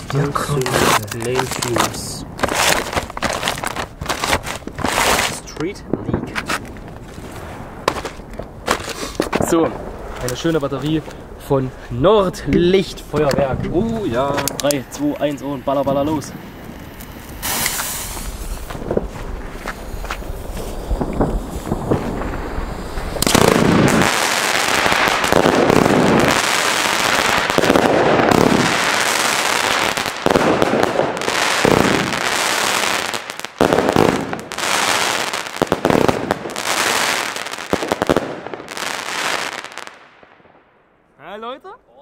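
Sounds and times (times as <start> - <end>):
dense firework crackling: 0.0 - 41.4
firework cake rapid shots: 17.2 - 19.0, 19.7 - 39.9.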